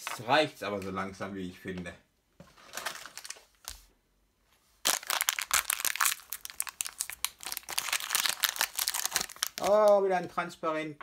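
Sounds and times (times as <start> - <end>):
foil packet crinkling: 2.6 - 3.8, 4.8 - 10.0.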